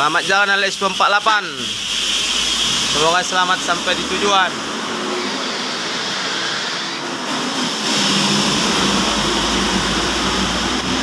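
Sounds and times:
bus diesel engine pulling away: 4.0 - 11.0.

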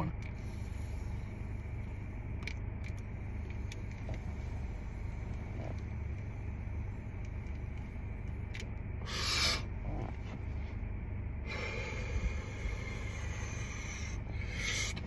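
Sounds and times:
steady low hum: 0.0 - 15.0
person exhaling: 9.0 - 9.7, 11.5 - 15.0.

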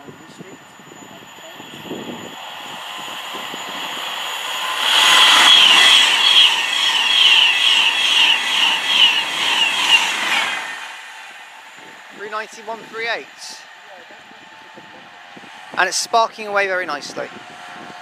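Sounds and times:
electric train passing at speed: 0.0 - 18.0
high pulsing whine: 0.0 - 18.0.

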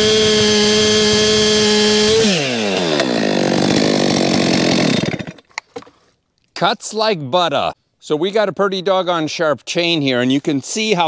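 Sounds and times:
chainsaw cutting log: 0.0 - 5.9.

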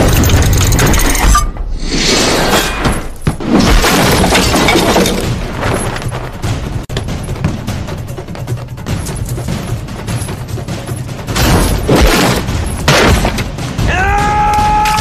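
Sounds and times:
objects crashing and shattering: 2.6 - 6.5
dramatic music score: 5.0 - 15.0.

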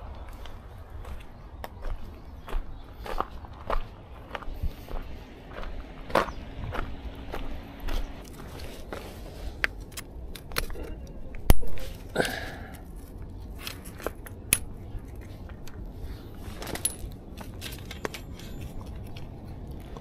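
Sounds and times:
camping gear clicking and clinking: 8.2 - 20.0.

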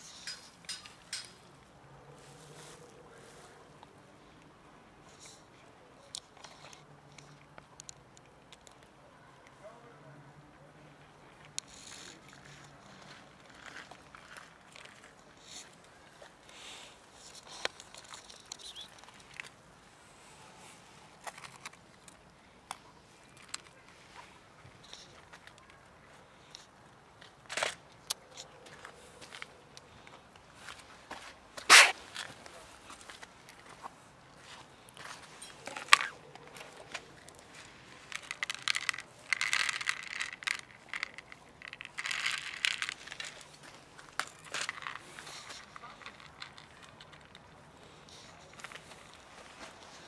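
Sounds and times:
cats chewing dry kibble: 11.4 - 19.7, 21.0 - 24.0, 34.7 - 50.0.

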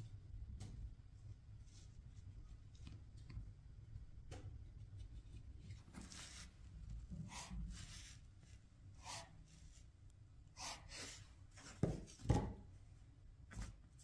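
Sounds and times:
handling rustles and scrapes: 4.8 - 10.0, 10.6 - 12.3.

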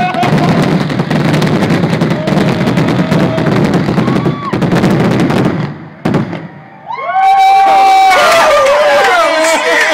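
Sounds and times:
fireworks cracks and bangs: 0.0 - 7.2.

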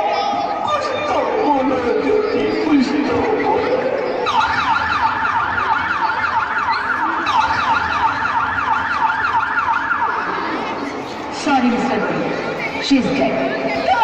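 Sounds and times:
siren yelping: 0.5 - 11.2.

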